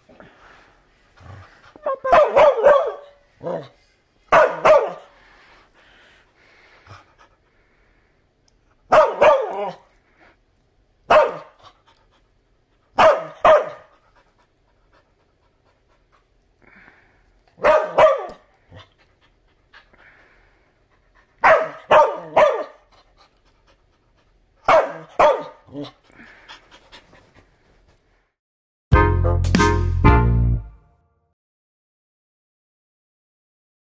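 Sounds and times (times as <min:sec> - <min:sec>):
dog barking: 0:02.0 - 0:03.7, 0:04.3 - 0:05.2, 0:08.9 - 0:09.8, 0:11.1 - 0:11.6, 0:13.0 - 0:13.9, 0:17.6 - 0:18.4, 0:21.4 - 0:22.8, 0:24.7 - 0:25.7
dog panting: 0:13.7 - 0:16.6, 0:18.6 - 0:28.1.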